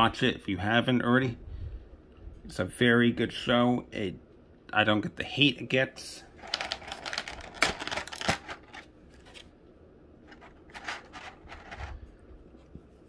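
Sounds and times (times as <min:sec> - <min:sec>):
handling clicks and rustling: 0:06.4 - 0:09.5, 0:10.3 - 0:12.1.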